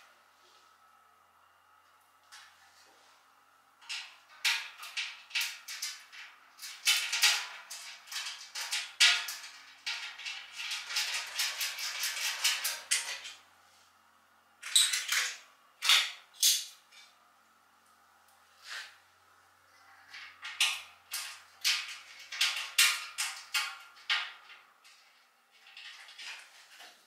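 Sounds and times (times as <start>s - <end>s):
metal panels clicking and rattling: 3.8s - 13.4s, 20.0s - 27.0s.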